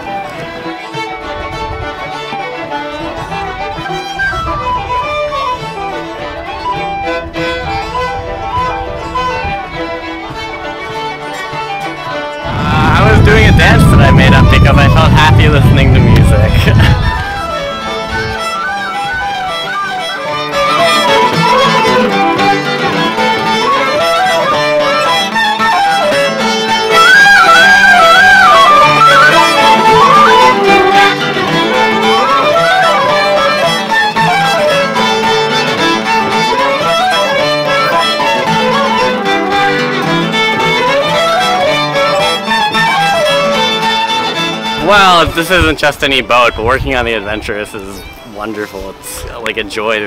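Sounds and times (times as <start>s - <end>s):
low accompanying notes: 0.0s - 50.0s
tin whistle melody: 16.9s - 39.9s, 40.6s - 44.4s.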